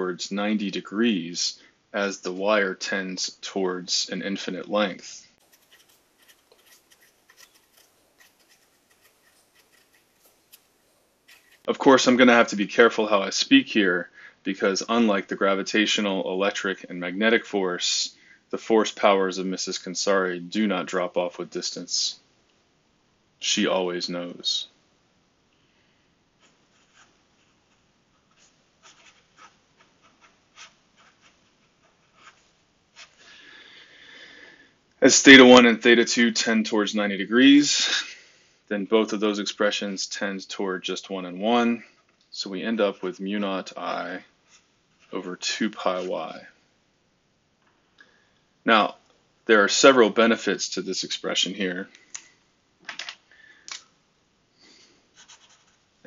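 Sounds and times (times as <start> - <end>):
marker scratching on paper: 5.4 - 11.7, 26.4 - 33.1.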